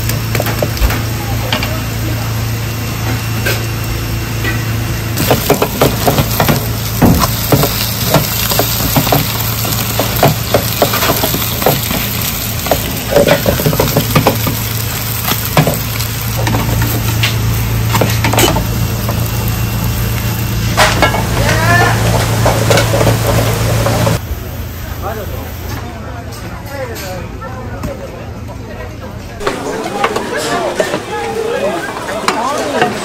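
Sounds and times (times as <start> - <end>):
pans and utensils clicking: 5.2 - 18.7
pancakes sizzling in oil: 5.3 - 24.2.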